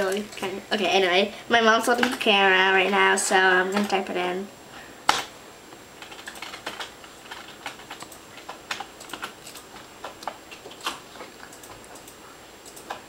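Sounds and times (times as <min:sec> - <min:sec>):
computer keyboard keystrokes: 0:03.7 - 0:04.0, 0:06.0 - 0:13.0.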